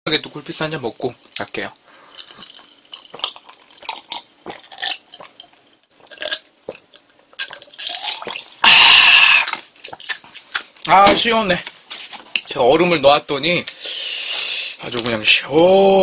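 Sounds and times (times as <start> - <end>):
person gulping a drink: 2.1 - 10.3.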